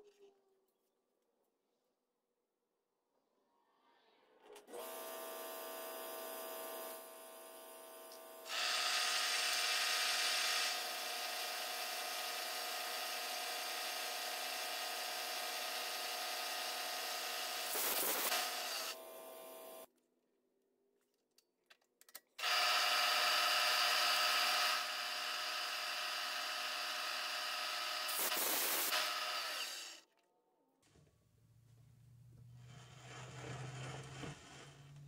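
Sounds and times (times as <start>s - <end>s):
cutting tool hissing into metal: 8.5s - 10.8s, 17.5s - 19.0s, 24.2s - 30.0s.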